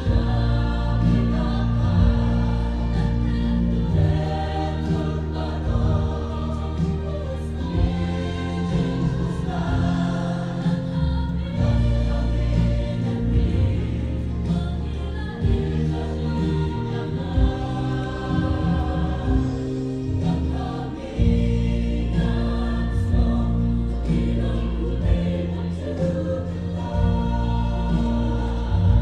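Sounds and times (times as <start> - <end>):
mixed choir singing gospel: 0.0 - 29.0.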